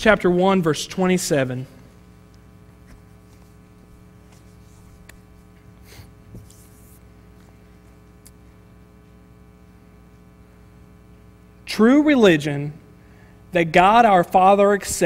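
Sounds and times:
electrical mains hum: 0.0s - 15.0s
pages rustling: 2.8s - 5.7s, 6.3s - 7.5s.

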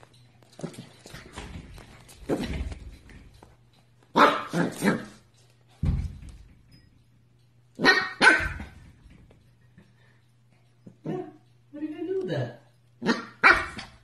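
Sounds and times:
puppy barking in high yelps: 4.1s - 5.2s, 7.8s - 8.8s, 13.0s - 14.0s.

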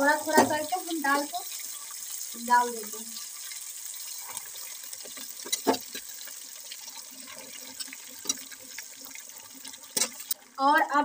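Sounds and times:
ghee sizzling and bubbling: 0.0s - 11.0s
spatula knocking and scraping pan: 4.9s - 6.5s, 7.2s - 9.2s.

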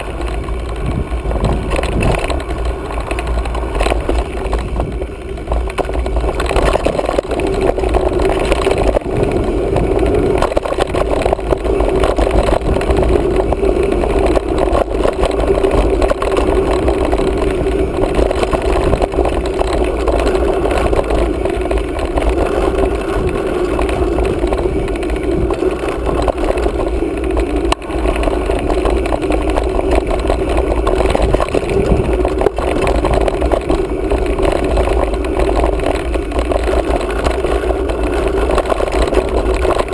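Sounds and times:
bike rattling over rough trail: 0.0s - 39.9s
bike tyre rumble: 0.0s - 39.9s
wind on microphone: 0.0s - 39.9s.

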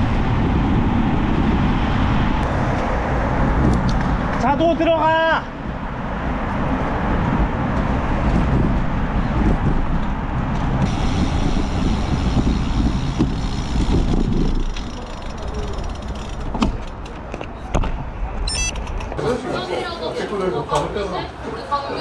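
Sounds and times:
wind noise on camera: 0.0s - 4.6s, 5.6s - 19.2s
bicycle road noise: 0.0s - 19.4s
car traffic: 0.0s - 22.0s
bicycle clicks: 10.5s - 17.4s.

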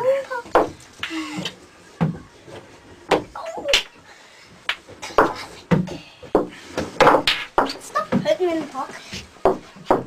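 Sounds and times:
snooker balls clacking: 4.7s - 8.3s.

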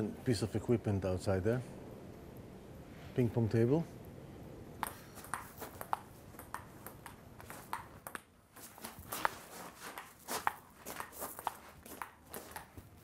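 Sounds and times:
ping pong ball clicks: 4.8s - 8.3s, 10.0s - 12.8s.

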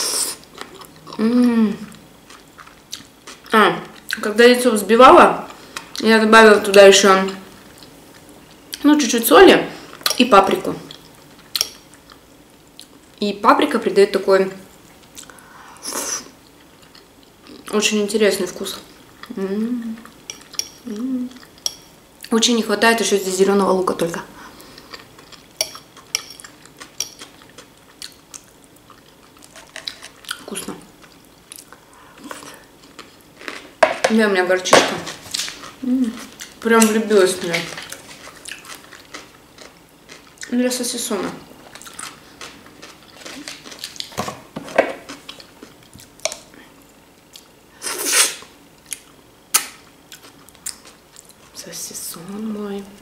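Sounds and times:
low voiced sound: 1.1s - 1.9s
person chewing: 1.9s - 4.2s, 10.9s - 13.0s, 19.2s - 22.3s, 24.6s - 33.7s, 37.8s - 40.5s, 41.6s - 51.5s.

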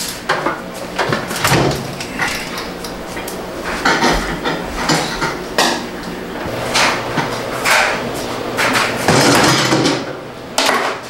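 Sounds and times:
microwave oven knocking and rattling: 0.0s - 11.0s.

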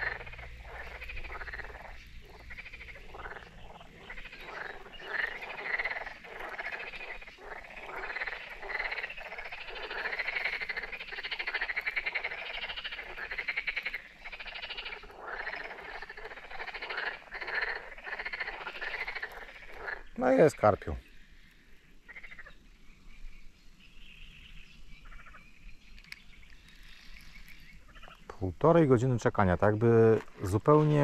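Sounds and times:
frogs croaking: 0.0s - 31.0s.

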